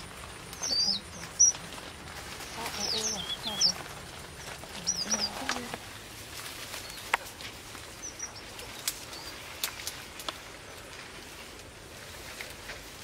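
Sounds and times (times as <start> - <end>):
finches chirping: 0.0 - 1.7, 2.3 - 5.8, 7.9 - 9.6.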